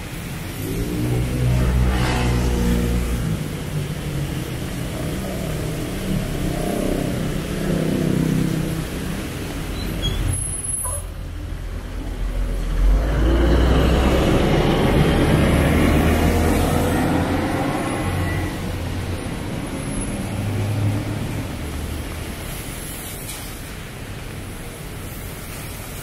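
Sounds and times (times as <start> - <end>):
large vehicle engine hum: 0.0 - 26.0
passing traffic hiss: 0.0 - 26.0
short high-pitched squeak: 9.8 - 11.1.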